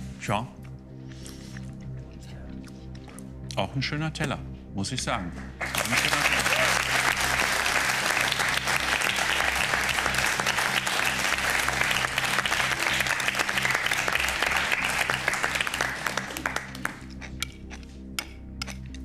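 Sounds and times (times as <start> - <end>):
background music: 0.0 - 19.0
studio audience applauding: 5.5 - 17.2.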